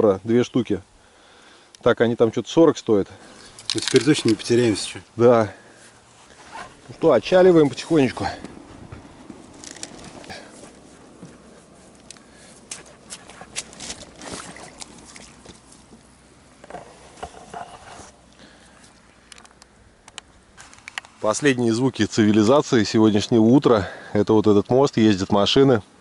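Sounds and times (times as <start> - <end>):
faint traffic hum: 0.0 - 26.0
oars knocking and splashing: 6.6 - 18.0.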